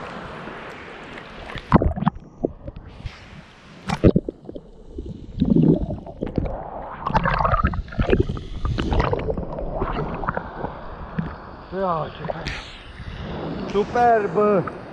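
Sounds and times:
sea water splashing: 0.0 - 14.9
muffled underwater gurgling: 1.5 - 3.0, 3.9 - 14.9.

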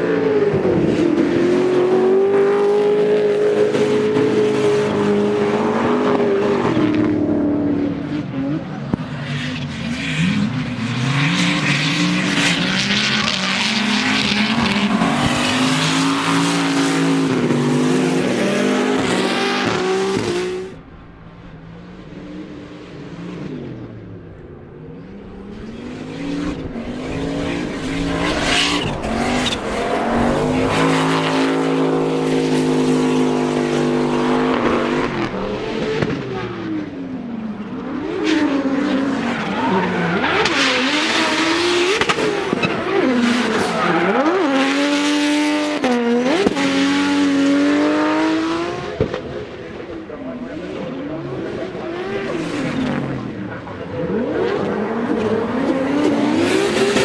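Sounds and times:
car engine revving high: 25.3 - 36.9, 37.8 - 49.4, 50.7 - 57.0.

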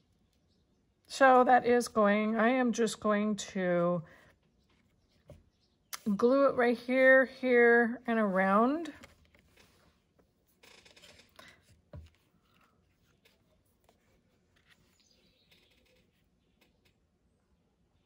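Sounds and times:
paper rustle: 8.9 - 16.7.

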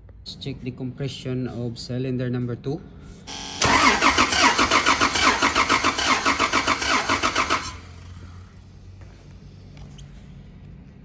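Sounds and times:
starter motor cranking engine: 3.4 - 8.1.

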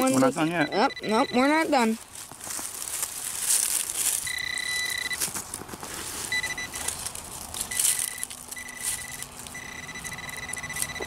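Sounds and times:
metal detector beep tone: 0.0 - 1.9, 4.2 - 5.3, 6.3 - 7.0, 7.6 - 11.0
hands scratching through soil and leaves: 1.5 - 9.6.

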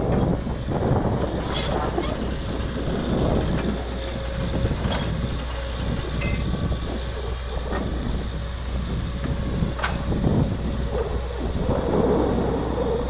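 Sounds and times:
drilling rig rumbling: 4.4 - 13.0
ringing metal clink: 6.2 - 6.5.

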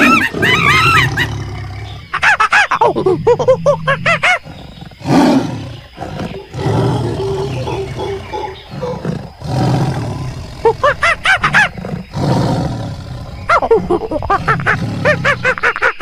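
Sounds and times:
animal growling roars: 0.0 - 2.1, 4.4 - 11.0, 11.6 - 13.5, 14.4 - 15.4
high animal calls: 0.0 - 16.0.

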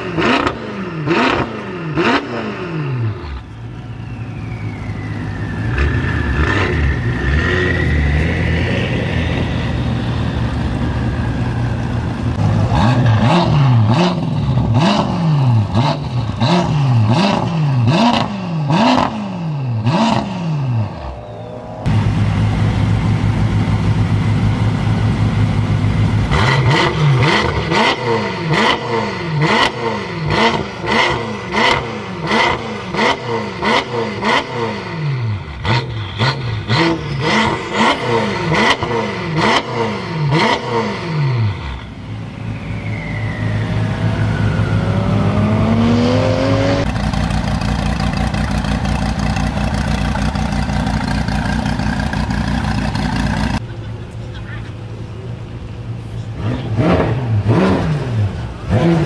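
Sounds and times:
car engine revving: 0.0 - 3.6, 4.4 - 53.7, 55.4 - 59.0
car engine idling: 8.4 - 13.0, 21.0 - 26.3, 46.8 - 56.4.

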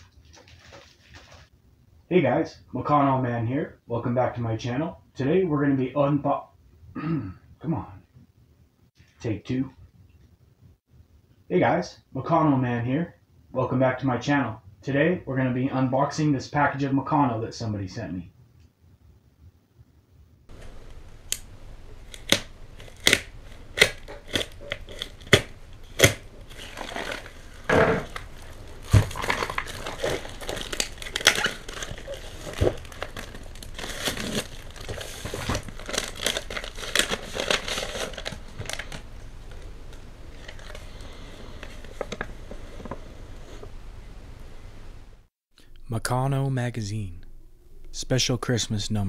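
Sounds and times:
tape and paper crinkling and tearing: 20.5 - 43.0
sharp tape snaps: 21.3 - 26.2.

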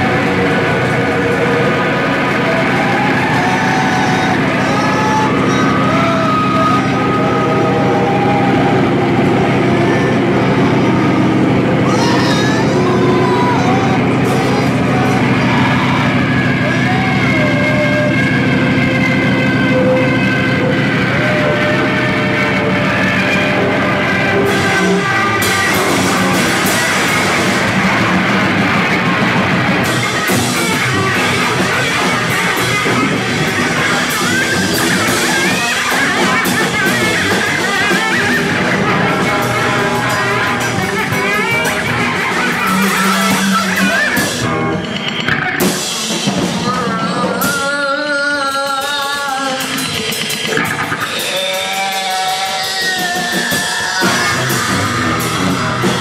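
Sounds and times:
noise music: 0.0 - 56.0.

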